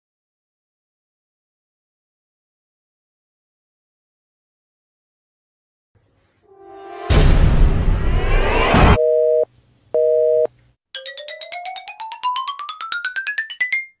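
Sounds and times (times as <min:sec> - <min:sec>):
telephone busy signal beeps: 0:09.0 - 0:10.5.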